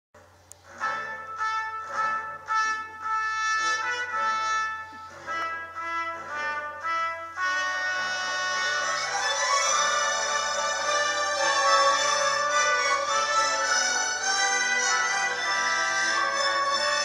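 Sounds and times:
brass music with held notes: 0:00.6 - 0:17.0.

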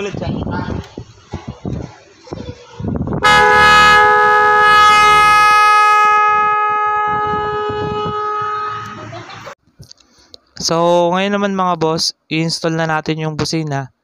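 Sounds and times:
car horns blasting: 0:03.2 - 0:09.4.

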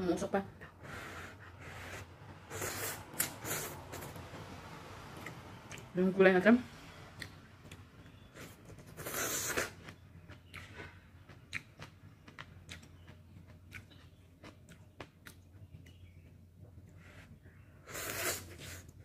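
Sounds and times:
noodle slurping: 0:00.8 - 0:04.1, 0:08.9 - 0:09.9, 0:17.8 - 0:19.0
chewing with wet clicks: 0:05.2 - 0:05.9, 0:07.2 - 0:08.9, 0:09.5 - 0:17.0.

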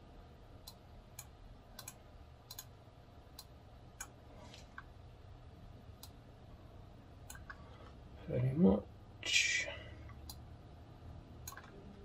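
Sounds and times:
low steady hum: 0:00.0 - 0:12.0
keyboard and mouse clicking: 0:00.6 - 0:02.7, 0:07.2 - 0:07.6, 0:11.4 - 0:11.8.

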